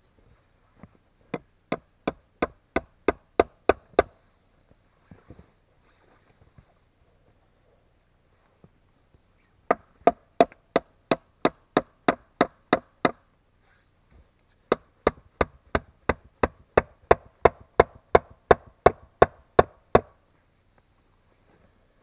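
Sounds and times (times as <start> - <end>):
tool striking wood: 1.3 - 4.2, 14.7 - 20.2.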